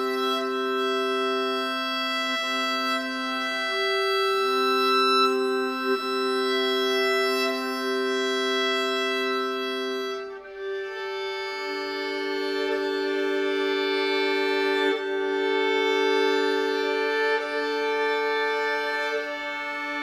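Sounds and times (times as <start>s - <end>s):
violin and viola sustained notes: 0.0s - 20.0s.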